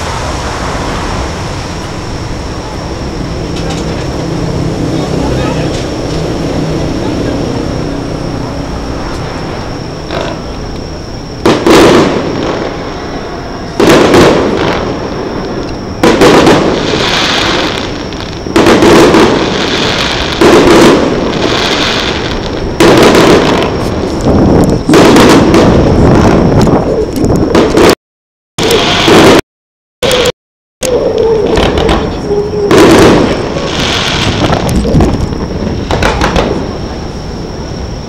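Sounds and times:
firework shells booming: 0:00.0 - 0:28.0, 0:28.6 - 0:29.4, 0:31.4 - 0:36.9
rumbling tail after booms: 0:00.0 - 0:28.0, 0:31.4 - 0:38.0.

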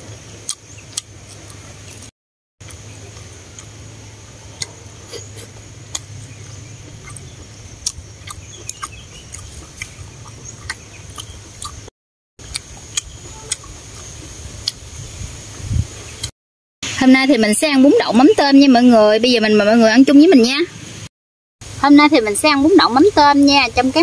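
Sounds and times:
steady low hum: 0:00.0 - 0:15.8
chewing and mouth smacks: 0:00.5 - 0:03.8, 0:04.6 - 0:14.8.

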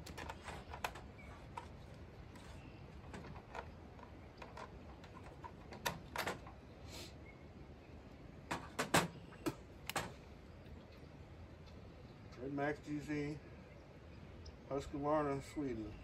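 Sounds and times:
plastic clicks and knocks: 0:08.5 - 0:10.2.

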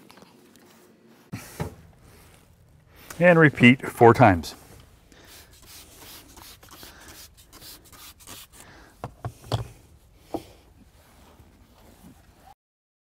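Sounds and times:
cloth wiping wet surface: 0:04.3 - 0:08.6.

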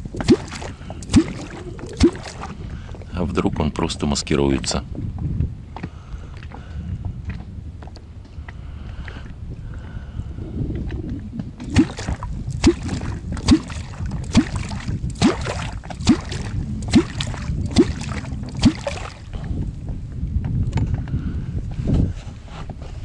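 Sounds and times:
deep bloop rising in pitch: 0:00.0 - 0:02.6, 0:11.0 - 0:19.3
kwok plunging into water: 0:00.1 - 0:02.7, 0:11.6 - 0:19.3.

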